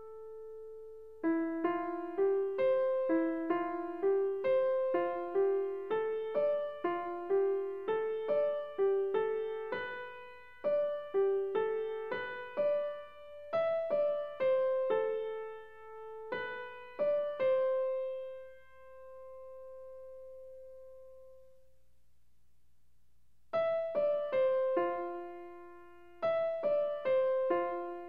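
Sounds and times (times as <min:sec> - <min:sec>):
slow piano melody: 0:00.0 - 0:21.7, 0:23.6 - 0:28.0.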